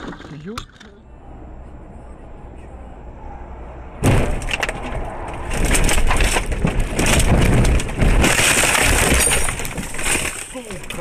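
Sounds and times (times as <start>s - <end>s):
road noise inside car: 0.0s - 11.0s
car crash impact: 4.0s - 11.0s
crunching and banging: 4.0s - 11.0s
glass breaking: 5.5s - 11.0s.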